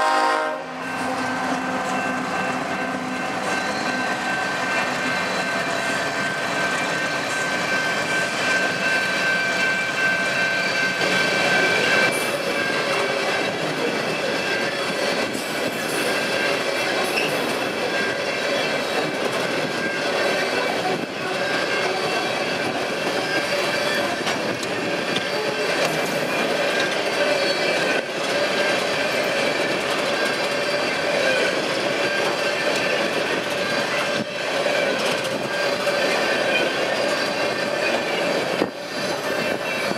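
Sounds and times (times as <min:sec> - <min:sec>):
diesel locomotive passing: 0:00.0 - 0:39.9
train wheels clattering on rail: 0:00.8 - 0:39.9
wheel squeal: 0:03.4 - 0:39.9.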